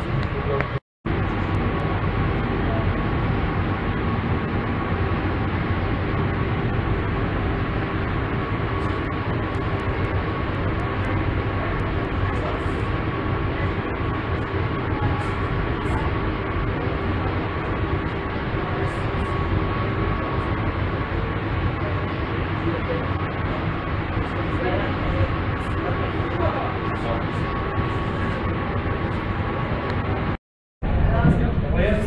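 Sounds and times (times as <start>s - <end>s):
faint whine: 0.0s - 32.0s
machinery hum: 0.0s - 32.0s
low rumble: 1.1s - 32.0s.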